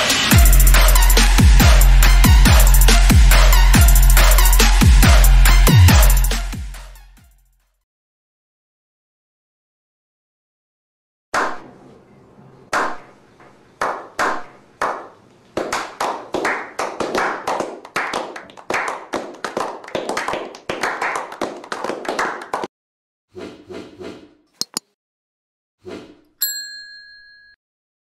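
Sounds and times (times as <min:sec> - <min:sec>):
group hand clapping: 0:13.8 - 0:22.7.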